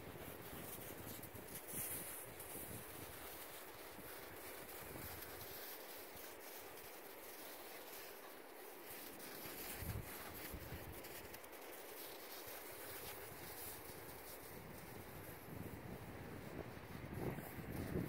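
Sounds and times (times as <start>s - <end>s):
faint wind hiss: 0.0s - 18.0s
wind buffeting microphone: 14.6s - 18.0s.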